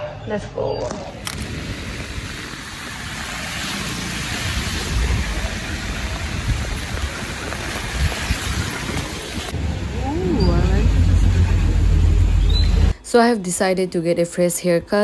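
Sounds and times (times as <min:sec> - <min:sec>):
traffic rumble: 0:00.4 - 0:14.9
rain hissing on street: 0:01.2 - 0:12.4.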